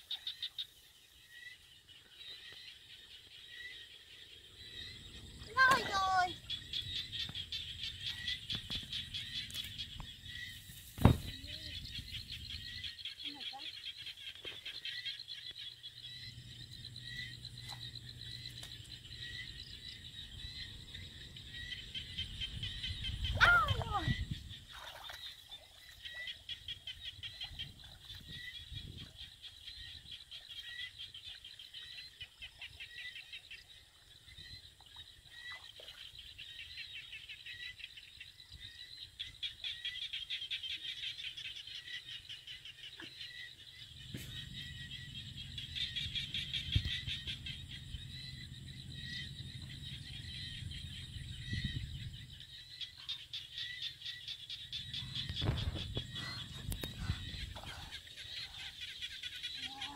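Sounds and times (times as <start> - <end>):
low rumble: 44.3 - 52.5.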